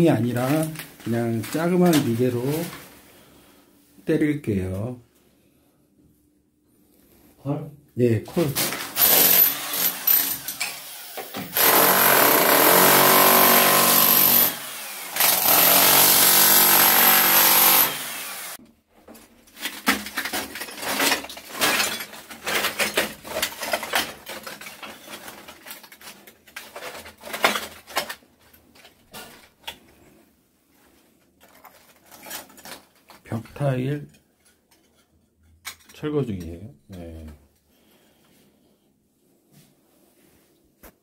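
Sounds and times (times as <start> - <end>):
demolition hammer chiselling tile: 8.6 - 18.6, 19.6 - 28.1.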